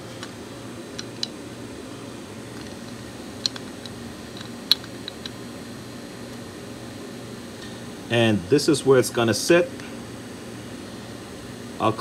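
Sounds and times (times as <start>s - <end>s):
low background hum: 0.0s - 12.0s
metal part clicking against engine: 3.4s - 5.4s.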